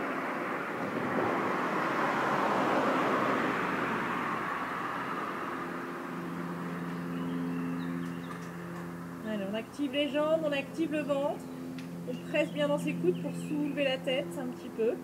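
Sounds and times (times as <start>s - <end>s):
car passing by: 0.0s - 9.3s.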